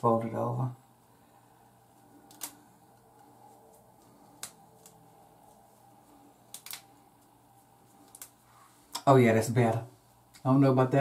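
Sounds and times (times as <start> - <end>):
hair handling: 1.8 - 9.1
rubber band clicks and snaps: 6.5 - 6.9.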